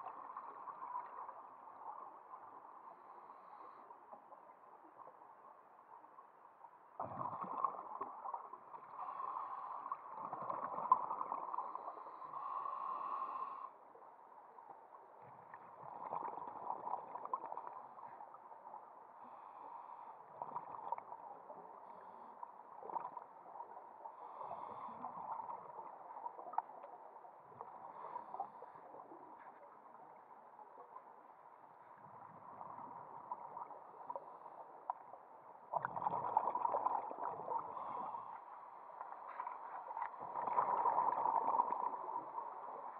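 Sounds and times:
underwater bubbles gurgling: 7.0 - 13.2, 14.9 - 30.1, 32.0 - 42.9.

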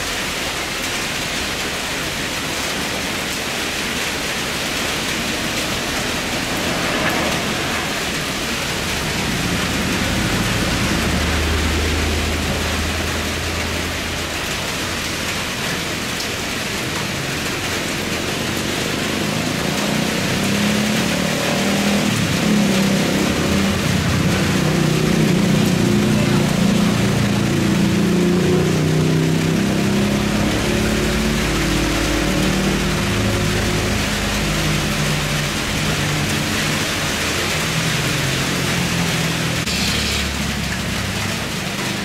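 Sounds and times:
rain falling: 0.0 - 42.0
jet airliner engine drone: 6.0 - 10.6.

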